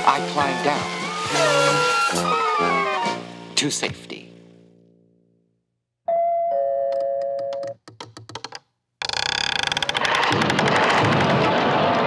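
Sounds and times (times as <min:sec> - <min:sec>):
doorbell dong tone: 0:06.1 - 0:07.6.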